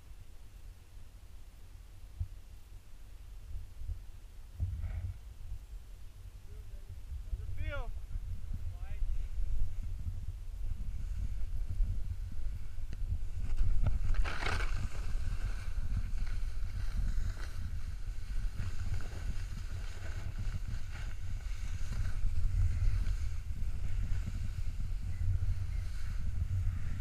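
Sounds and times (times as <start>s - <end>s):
wind buffeting microphone: 3.4s - 27.0s
snow hissing under skis: 10.7s - 27.0s.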